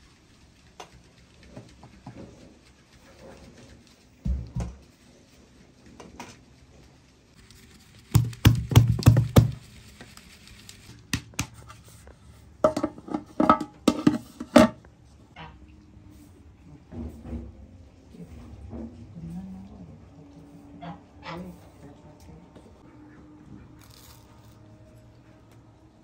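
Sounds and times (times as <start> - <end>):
knocks and thuds: 4.2 - 4.8, 8.1 - 9.6.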